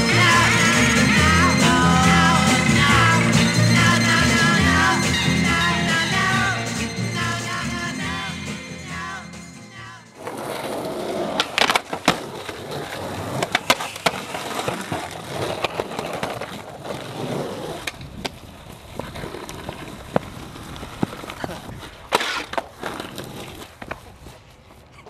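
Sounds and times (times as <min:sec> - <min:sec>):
song with singing: 0:00.0 - 0:10.2
skateboard wheels rolling on concrete: 0:10.1 - 0:25.0
skateboard clacks and knocks: 0:10.2 - 0:24.1.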